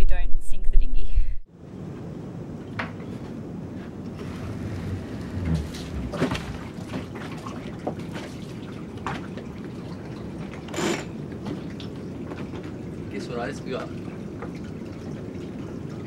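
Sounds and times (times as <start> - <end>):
wind rumble on microphone: 0.0 - 10.6
water running and splashing: 4.1 - 16.0.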